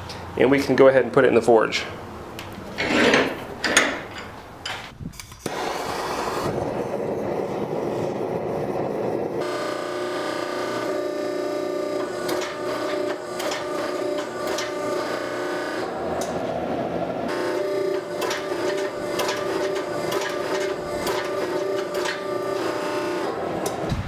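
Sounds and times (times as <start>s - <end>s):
forge humming: 5.4s - 24.0s.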